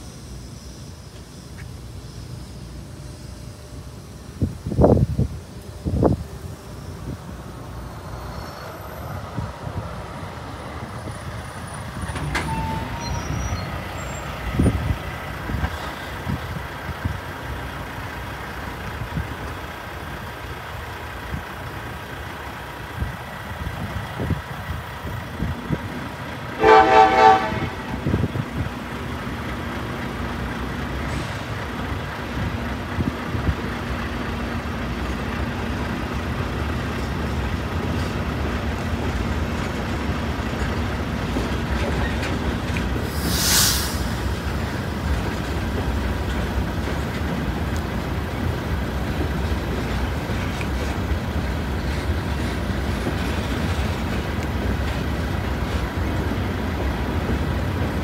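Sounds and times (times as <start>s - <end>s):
train wheels rumbling on rails: 0.0s - 58.0s
train horn toot: 26.6s - 28.2s.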